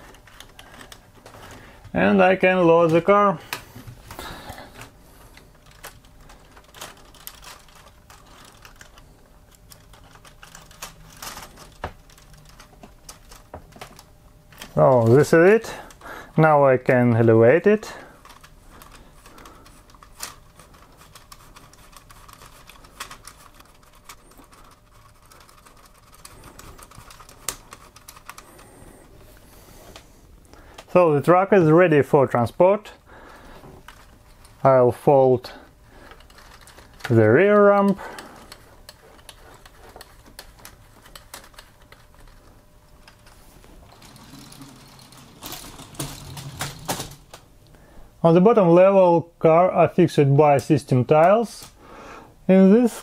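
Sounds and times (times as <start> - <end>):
plastic gears clicking: 5.6 - 16.0, 17.8 - 28.7, 36.1 - 47.4.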